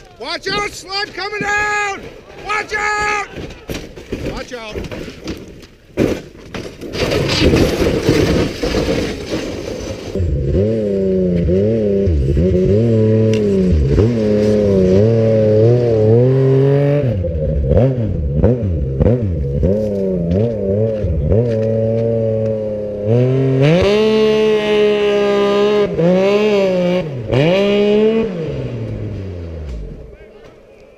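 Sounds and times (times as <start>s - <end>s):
snowmobile engine revving: 0.0s - 3.7s, 7.0s - 30.9s
rough scraping and clattering: 0.5s - 10.3s, 13.3s - 16.0s.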